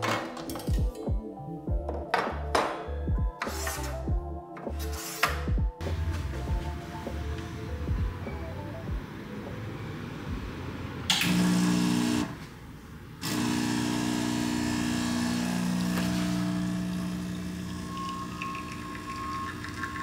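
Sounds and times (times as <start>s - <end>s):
espresso machine pump humming: 13.3s - 20.0s.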